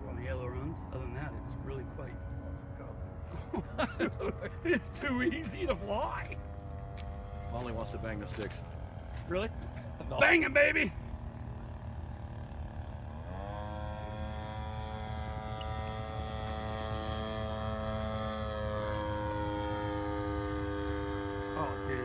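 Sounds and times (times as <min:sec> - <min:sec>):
model airplane engine droning buzz: 0:00.0 - 0:22.0.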